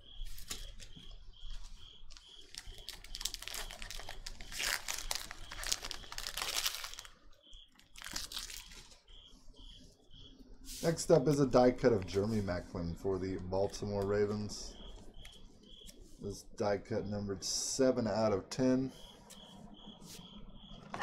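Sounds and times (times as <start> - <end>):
cricket chirping: 0.0 - 21.0
foil wrappers crinkling: 0.2 - 9.0.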